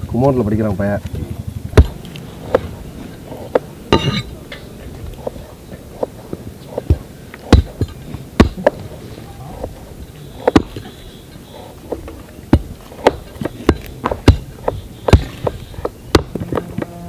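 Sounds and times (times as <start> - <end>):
cleaver chopping on wooden block: 6.0 - 8.8, 12.0 - 16.9.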